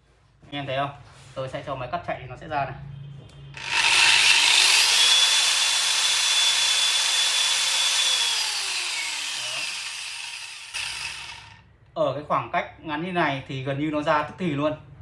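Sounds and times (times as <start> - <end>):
wall chaser motor whining: 3.6 - 11.6.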